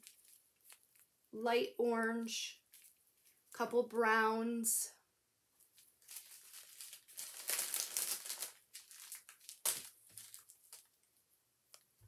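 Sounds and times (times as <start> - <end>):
plastic bags crinkling: 0.0 - 1.1, 5.7 - 11.1.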